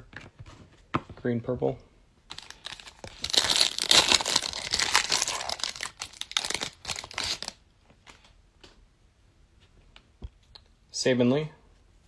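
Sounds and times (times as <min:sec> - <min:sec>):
foil wrapper tearing and crinkling: 0:02.3 - 0:07.6.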